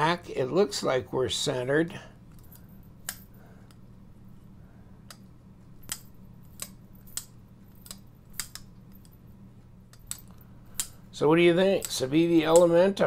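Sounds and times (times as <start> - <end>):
folding knife clicking: 5.8 - 8.7.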